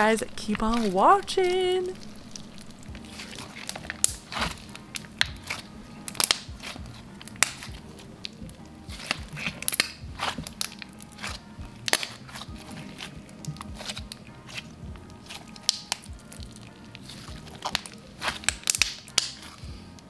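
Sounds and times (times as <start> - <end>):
slime squeezed by hand: 2.3 - 19.6.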